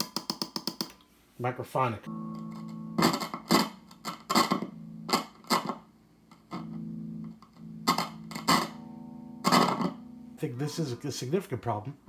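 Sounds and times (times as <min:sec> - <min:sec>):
amplifier hum: 0:02.0 - 0:10.9.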